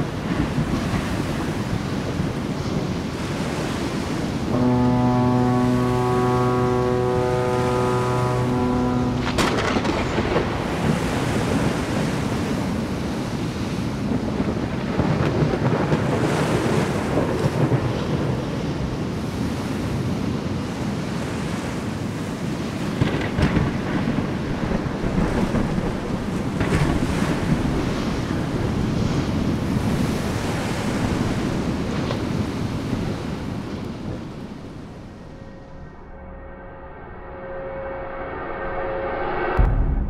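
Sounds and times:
deep rushing noise: 34.9 - 40.0.

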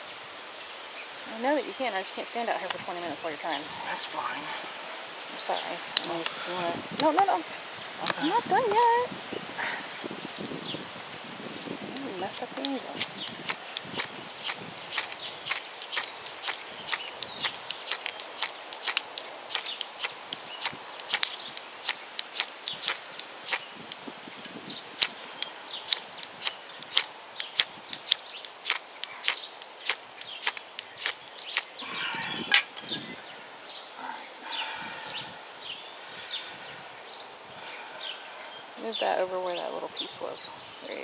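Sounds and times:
ferro rod scraped with striker: 13.0 - 24.0, 25.0 - 32.9.

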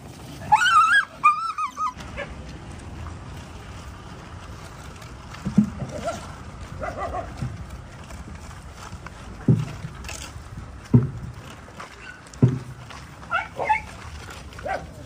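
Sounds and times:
dog yelping and whining: 0.5 - 2.3, 13.3 - 13.9.

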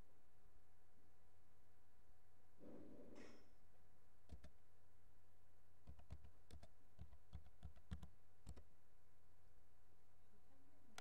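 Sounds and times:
keyboard keystrokes: 4.3 - 4.6, 5.9 - 8.6.

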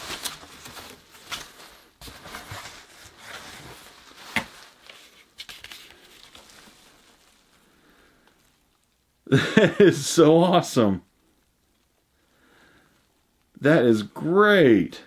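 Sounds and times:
paper and cardboard rustling: 0.0 - 7.6.

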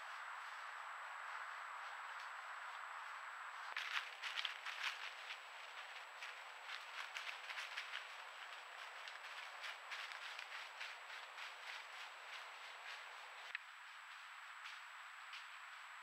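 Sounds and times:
footsteps in dry leaves: 3.7 - 14.4.

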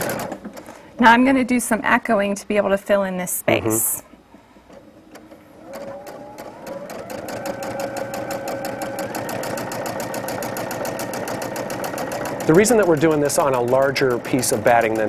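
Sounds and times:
sewing machine stitching: 0.0 - 0.8, 4.7 - 15.0.

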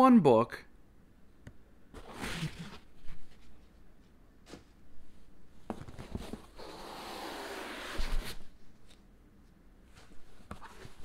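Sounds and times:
book scraping out of cardboard box: 2.0 - 2.9, 6.0 - 8.4.

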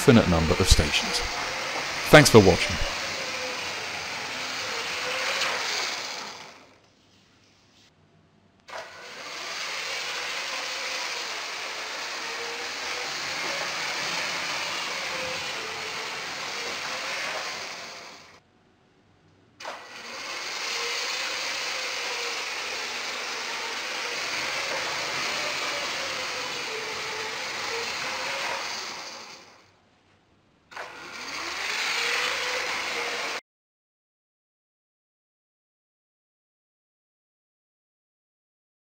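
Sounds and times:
toy train motor whine: 0.0 - 6.9, 8.7 - 18.4, 19.6 - 29.7, 30.7 - 33.4.

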